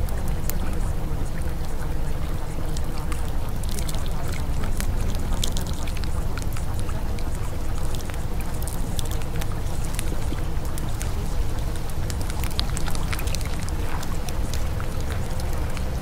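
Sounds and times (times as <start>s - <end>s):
water trickling with drip-like clicks: 0.0s - 16.0s.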